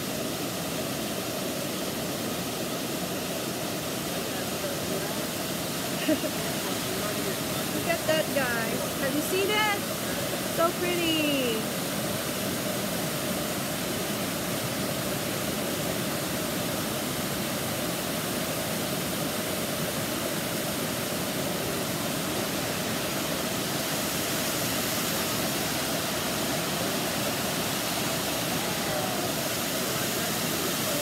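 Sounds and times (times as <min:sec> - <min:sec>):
waterfall rushing: 0:00.0 - 0:31.0.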